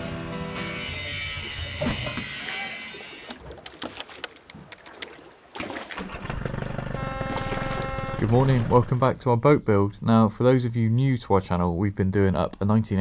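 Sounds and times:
hiss-like noise: 0.5s - 3.4s.

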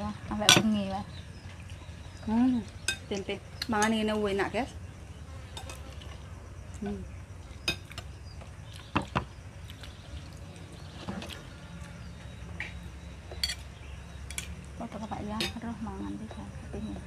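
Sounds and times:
low background hum: 0.0s - 17.0s
spoons clinking on plates: 13.3s - 13.7s.

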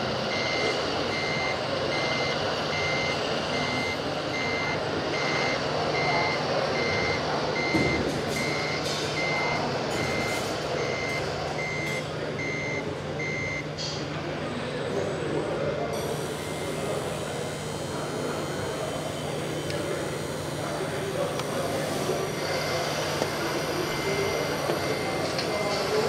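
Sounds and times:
reversing beeper: 0.3s - 13.7s, 16.2s - 26.0s.

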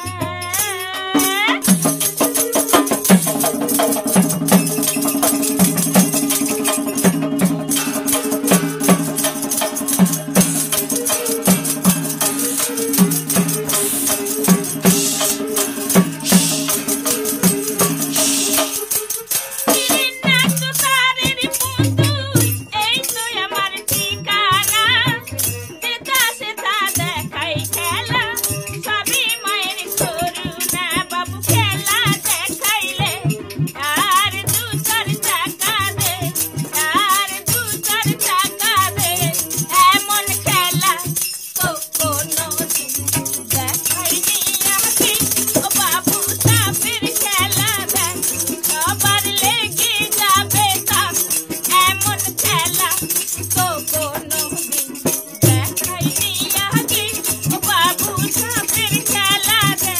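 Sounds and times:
rattling percussion rhythm: 0.0s - 59.9s
drum beat: 1.2s - 23.0s, 33.8s - 59.9s
pitched drum strokes: 1.6s - 21.0s
wavering pipe melody: 2.3s - 21.2s
person singing: 10.8s - 25.5s.

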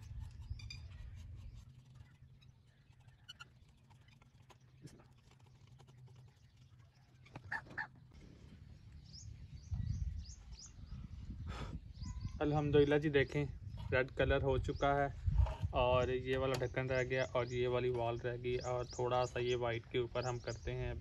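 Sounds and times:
high bird chirps: 9.0s - 12.9s.

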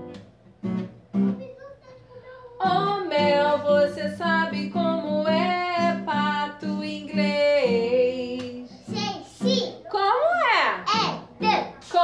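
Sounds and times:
guitar accompaniment: 0.0s - 12.0s
woman singing a children's song: 2.6s - 9.0s, 9.8s - 10.8s, 11.8s - 12.0s.

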